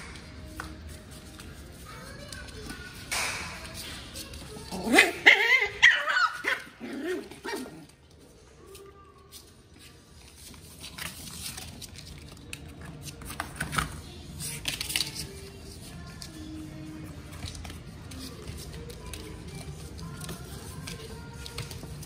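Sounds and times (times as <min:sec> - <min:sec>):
puppies scuffling: 0:00.4 - 0:22.0
puppies yelping and whining: 0:04.7 - 0:07.8.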